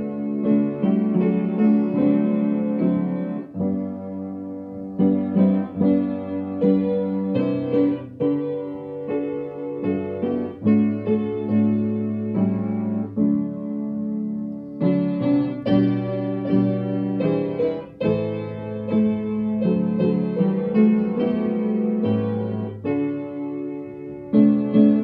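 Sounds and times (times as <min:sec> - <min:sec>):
piano playing hymn chords: 0:00.0 - 0:25.0.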